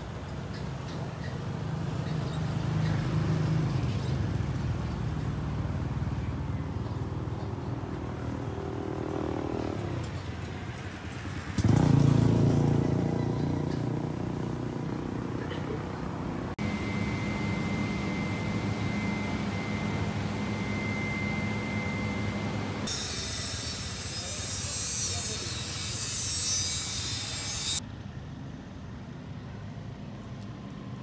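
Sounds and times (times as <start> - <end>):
vehicle engine running: 2.6 - 22.9
steady hum: 16.5 - 22.9
thin high whine: 16.6 - 24.6.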